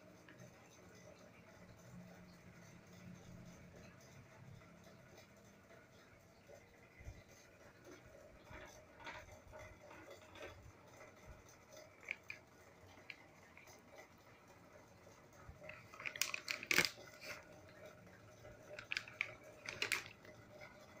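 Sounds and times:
plastic bag crinkling: 0:15.6 - 0:17.4, 0:18.7 - 0:20.3.

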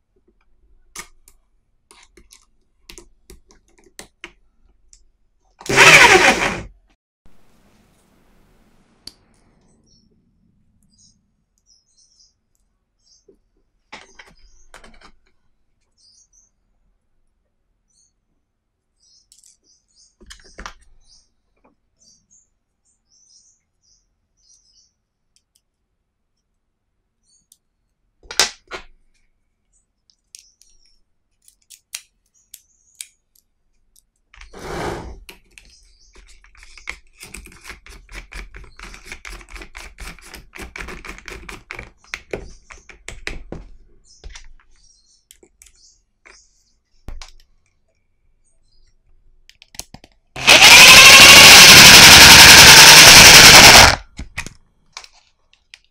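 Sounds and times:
drill chuck ratcheting clicks: 0:05.7 - 0:06.7, 0:50.4 - 0:54.0.

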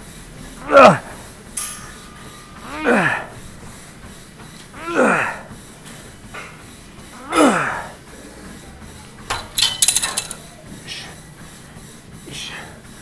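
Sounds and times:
man grunting with effort: 0:00.6 - 0:01.2, 0:02.6 - 0:03.4, 0:04.8 - 0:05.5, 0:07.2 - 0:08.0
metal weights clanking: 0:09.3 - 0:10.4.

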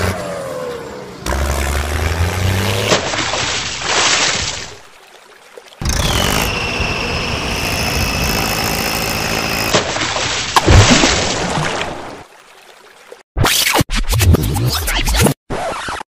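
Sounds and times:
engine running loudly: 0:05.8 - 0:09.8.

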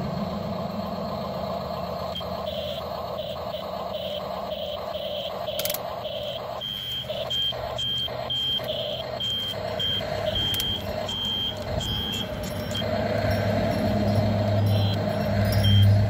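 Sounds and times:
low motor hum: 0:00.0 - 0:16.0
short high electronic beeps: 0:02.1 - 0:16.0.

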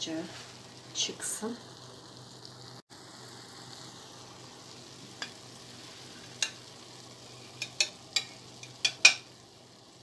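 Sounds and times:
faint sizzle from a pan: 0:00.0 - 0:10.0
metal spatula scraping a pan: 0:07.2 - 0:09.2.

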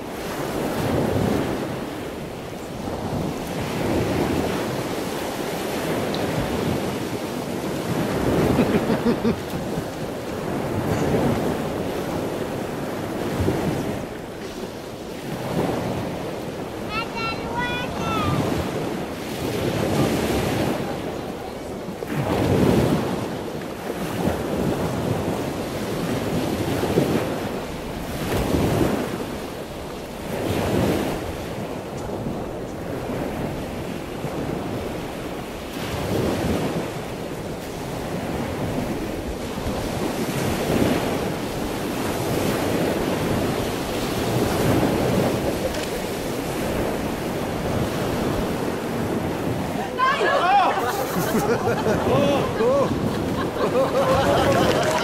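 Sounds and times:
water washing in surges: 0:00.0 - 0:55.0
wind noise on microphone: 0:00.0 - 0:55.0.

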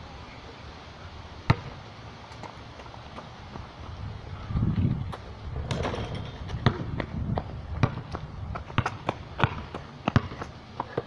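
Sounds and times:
basketball bouncing on concrete: 0:01.5 - 0:01.8, 0:05.1 - 0:11.0.

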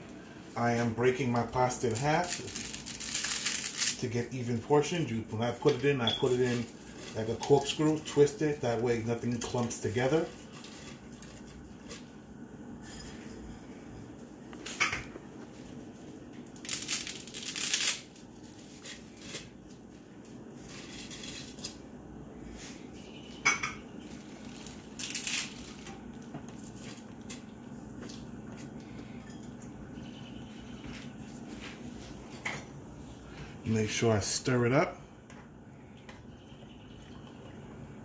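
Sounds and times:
boiling water: 0:33.3 - 0:38.0.

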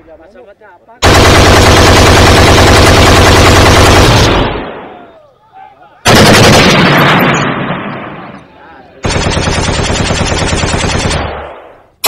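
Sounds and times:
machine-gun bursts: 0:01.0 - 0:04.6, 0:06.1 - 0:07.4, 0:09.0 - 0:11.3
faint shouting voices: 0:04.8 - 0:06.1, 0:08.4 - 0:09.0.

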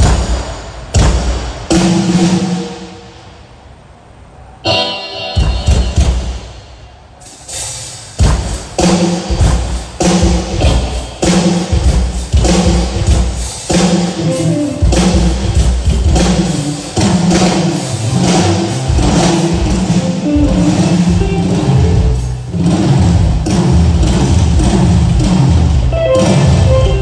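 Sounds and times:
loud drum hit ringing: 0:00.0 - 0:03.4, 0:04.7 - 0:06.8, 0:08.2 - 0:27.0
drums: 0:00.0 - 0:27.0
bass guitar: 0:14.1 - 0:27.0.

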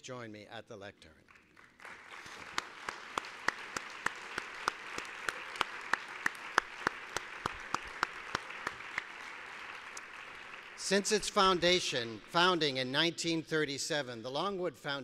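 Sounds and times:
close loud hand claps: 0:01.3 - 0:12.5
audience applauding: 0:01.3 - 0:12.6.

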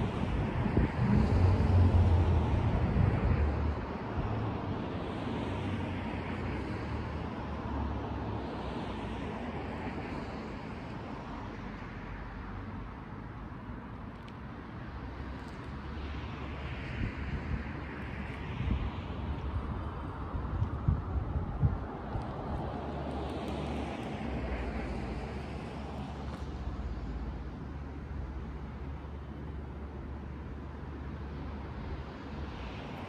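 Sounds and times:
wind buffeting microphone: 0:00.0 - 0:05.8, 0:16.9 - 0:25.8.

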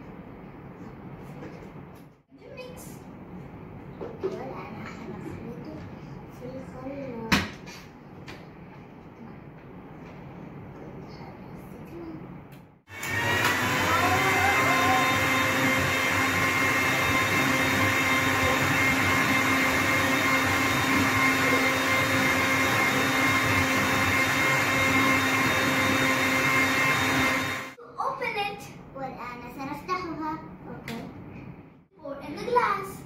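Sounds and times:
blender running: 0:12.9 - 0:27.8.

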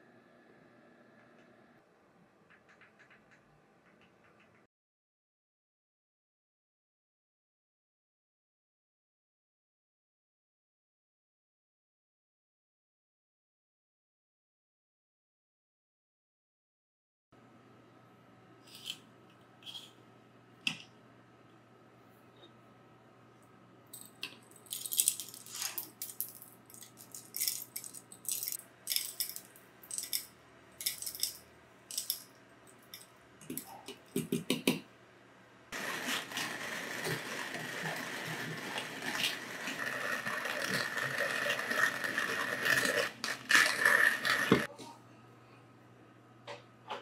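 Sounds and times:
beans crunching in hand grinder: 0:24.5 - 0:32.2, 0:35.8 - 0:44.7
coffee beans rattling into metal hopper: 0:24.5 - 0:32.2.

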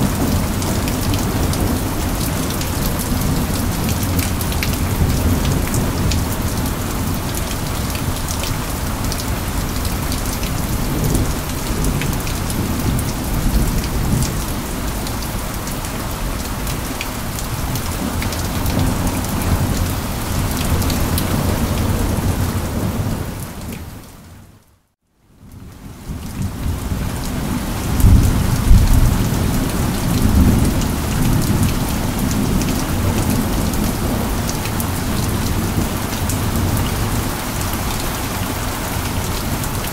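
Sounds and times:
heavy rain pouring: 0:00.0 - 0:39.9
thunder rumbling: 0:26.4 - 0:37.3.

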